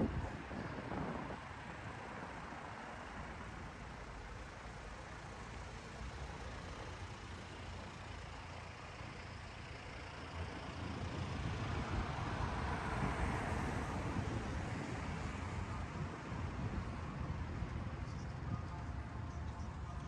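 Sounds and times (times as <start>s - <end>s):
street traffic: 0.0s - 20.0s.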